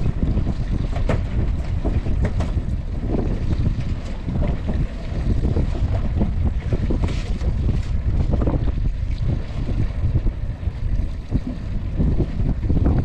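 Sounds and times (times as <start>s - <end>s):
knocks and scrapes of rope hauling: 0.0s - 8.6s
wind buffeting microphone: 0.0s - 13.0s.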